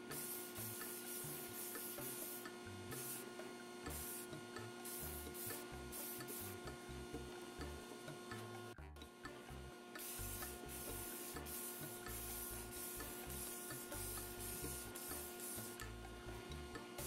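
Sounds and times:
steady hum: 0.0 - 17.0
spray paint can hissing: 0.1 - 3.3, 3.9 - 6.7, 10.0 - 16.1.

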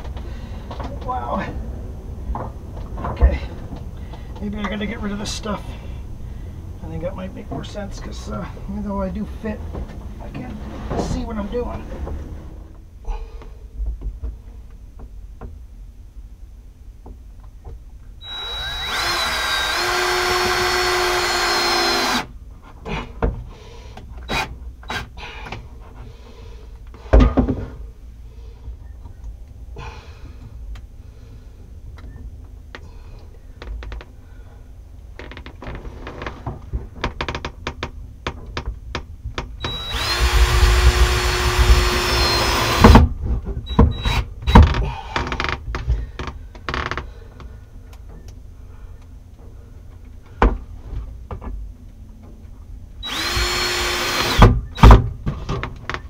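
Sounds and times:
power drill motor whining: 18.2 - 22.3, 39.6 - 43.0, 43.7 - 44.3, 53.0 - 54.8.

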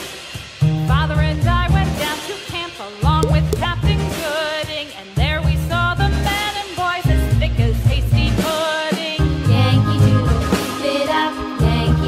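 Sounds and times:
children's song: 8.3 - 12.0.

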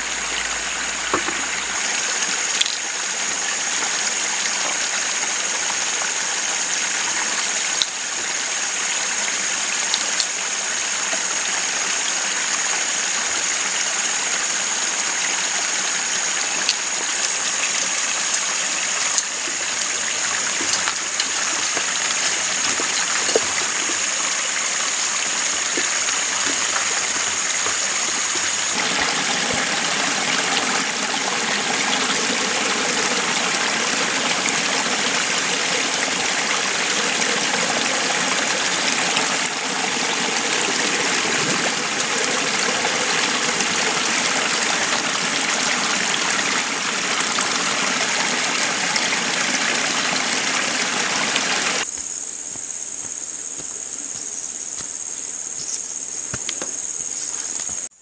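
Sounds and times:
stream water rushing: 0.0 - 5.2, 28.6 - 51.8.

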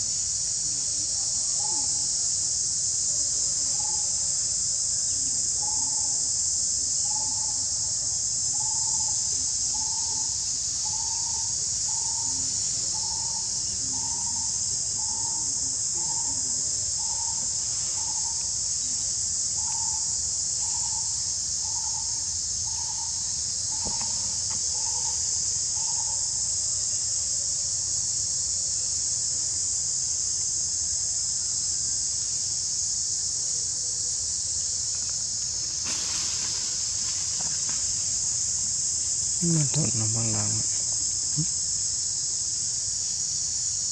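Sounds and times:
insects droning: 0.0 - 43.9.

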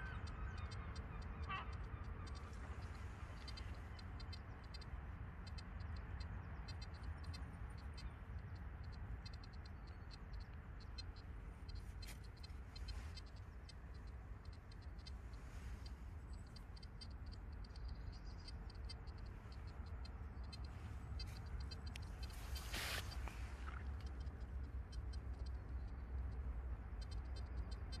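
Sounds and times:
low steady rumble: 0.0 - 28.0
fingers scraping through soil and leaves: 22.2 - 23.9.

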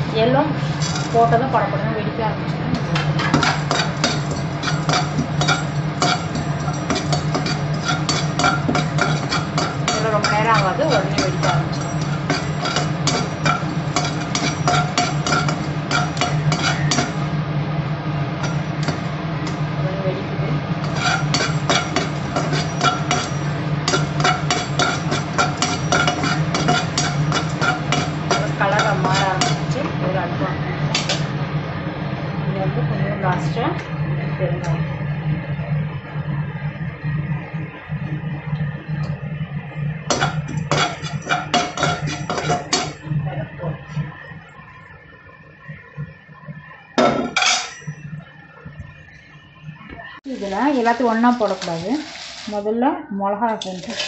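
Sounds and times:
low hum: 0.0 - 52.2
metal spoon scraping a pan: 0.6 - 1.5, 2.8 - 17.3, 18.4 - 19.6, 20.8 - 29.8, 30.9 - 31.3, 40.1 - 43.1, 47.0 - 48.0, 50.3 - 52.5, 53.5 - 54.0.

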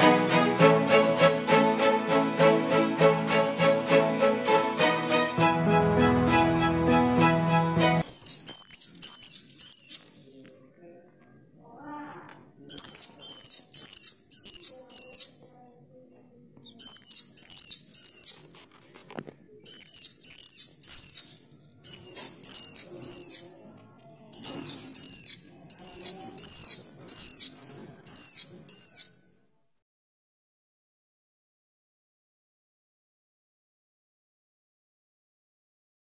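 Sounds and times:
bird calling in high notes: 7.8 - 10.1, 11.8 - 15.4, 16.8 - 18.4, 19.7 - 23.4, 24.4 - 29.2.

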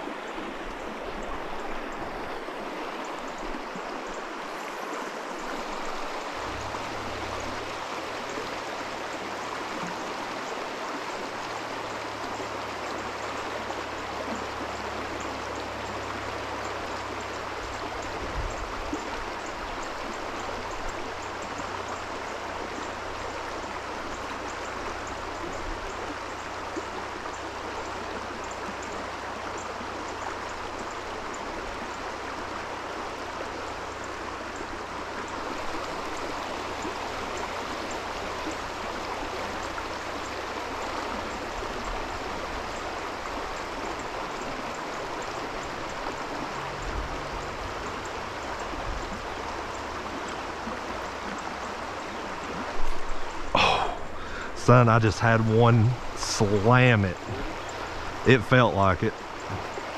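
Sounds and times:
stream water rushing: 0.0 - 59.9.

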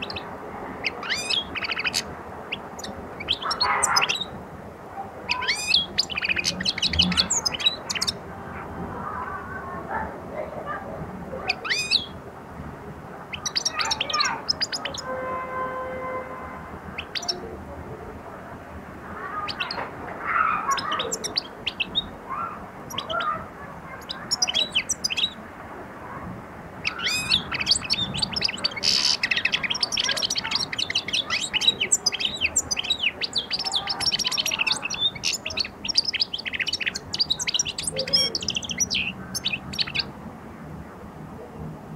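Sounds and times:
goldfinch twittering: 0.0 - 4.3, 5.3 - 8.2, 11.5 - 12.1, 13.3 - 15.0, 24.0 - 25.4, 26.8 - 40.1.

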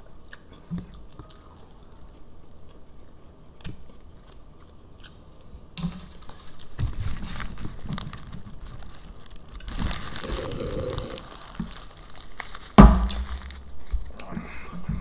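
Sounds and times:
paper wrappers crinkling: 6.1 - 14.2.

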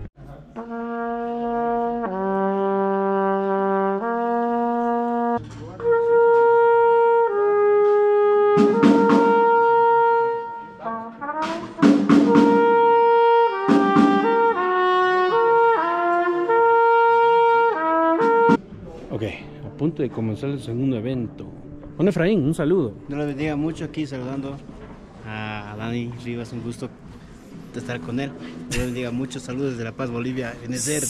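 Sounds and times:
trumpet playing: 0.6 - 18.6, 30.7 - 31.0.

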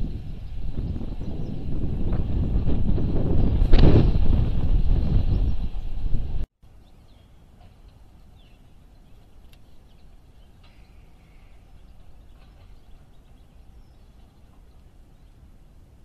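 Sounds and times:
steady low rumble: 0.0 - 6.9
faint bird chirps: 6.7 - 15.6.

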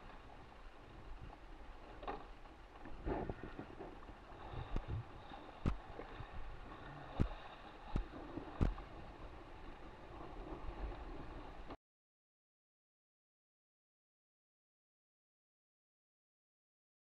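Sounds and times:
water sloshing around a hull: 0.0 - 11.8
wind on microphone: 3.0 - 9.0.

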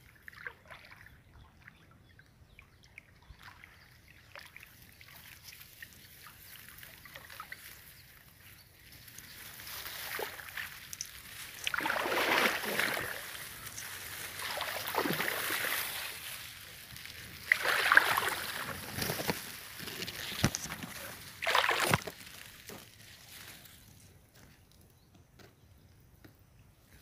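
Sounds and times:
water sloshing underfoot: 3.0 - 23.8
grass stems brushing: 7.0 - 24.1.

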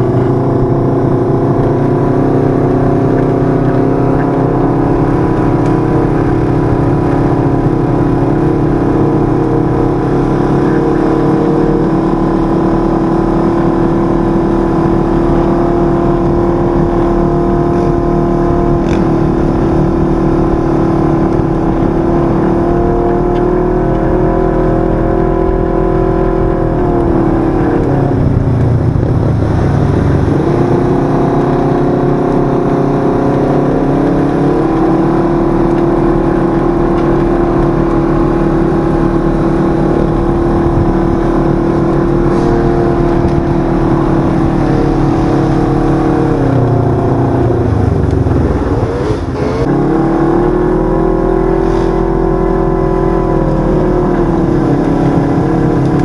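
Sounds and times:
utv engine running: 0.0 - 56.0.

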